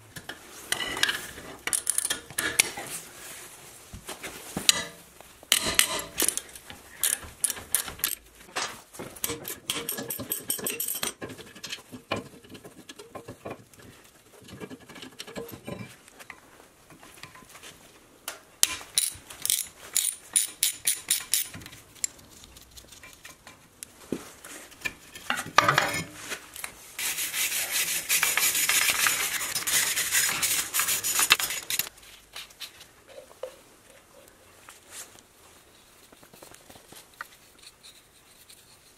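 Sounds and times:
wire brush scrubbing steel: 27.0s - 31.9s.

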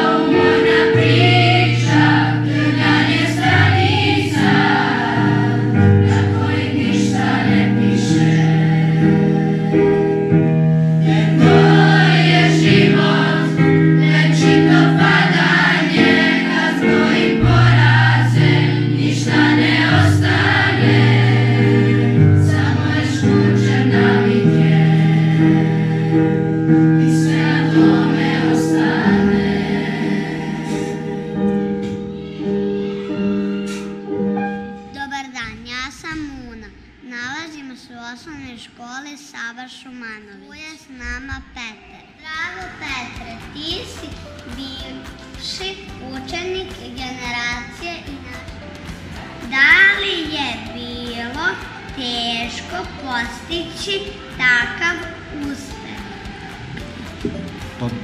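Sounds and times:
children's choir singing: 0.0s - 34.7s, 49.0s - 58.0s
keyboard accompaniment: 0.0s - 37.0s, 42.5s - 58.0s.

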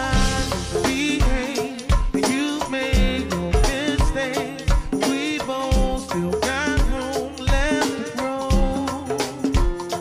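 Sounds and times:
heavy kick drum: 0.0s - 2.3s, 3.0s - 5.0s
drum beat: 0.0s - 10.0s
person singing melismatic lines: 0.0s - 10.0s.

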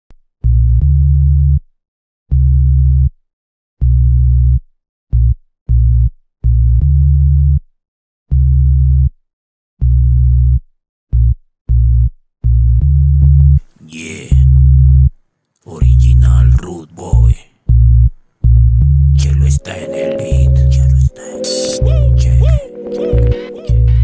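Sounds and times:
deep synthesizer bass notes: 21.8s - 24.0s.

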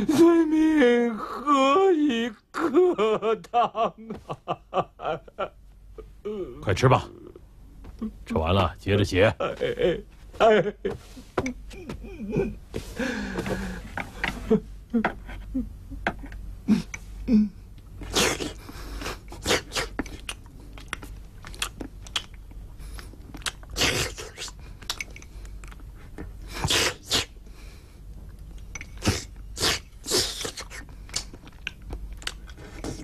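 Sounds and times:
man chewing: 17.8s - 27.3s, 28.0s - 33.0s.

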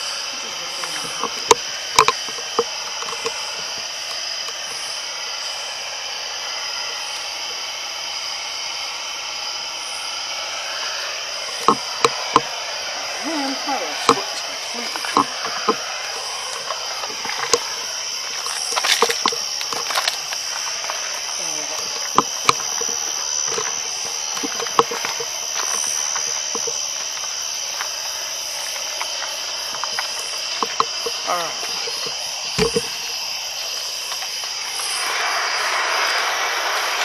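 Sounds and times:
steady high-pitched hiss: 0.0s - 37.0s
sharp clicks and knocks: 0.8s - 4.6s, 11.6s - 12.5s, 16.5s - 33.2s.

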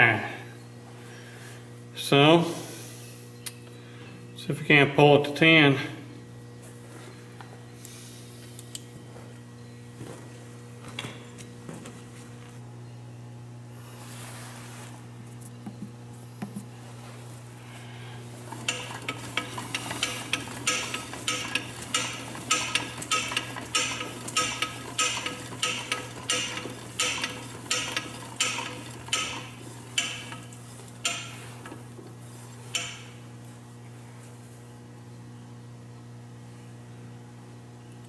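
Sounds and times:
low electrical hum: 0.0s - 38.0s
lathe carriage clicking rattle: 18.4s - 31.8s.

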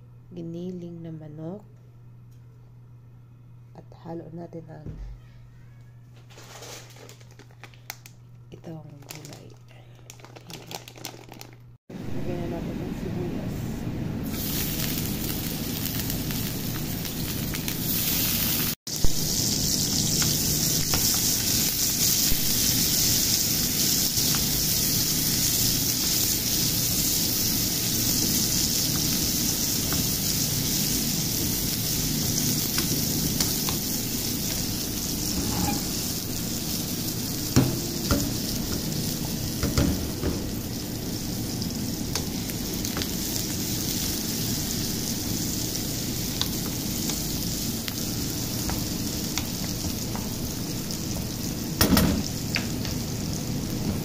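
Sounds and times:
onions sizzling in oil: 14.2s - 54.0s.

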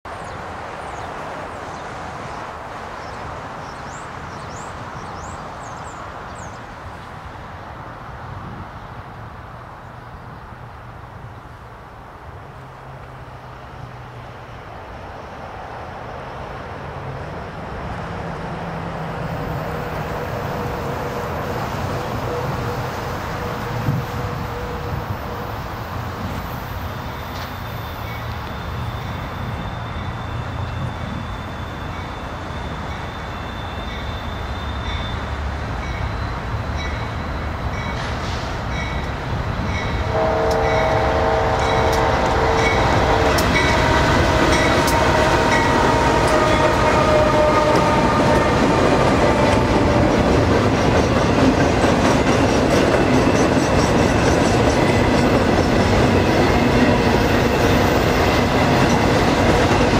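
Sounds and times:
diesel locomotive engine rumble: 0.1s - 59.9s
multi-note air horn chord: 40.1s - 45.1s.

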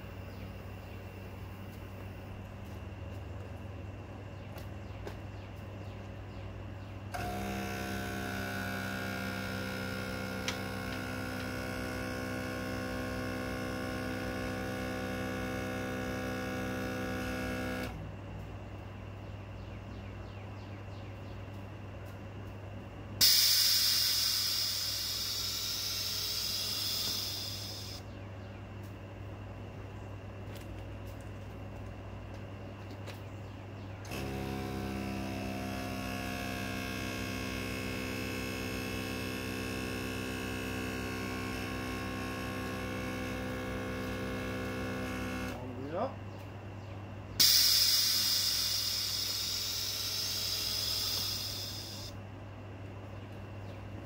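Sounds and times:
steady low hum: 0.0s - 54.0s
loud hiss: 23.2s - 28.0s, 47.4s - 52.1s.

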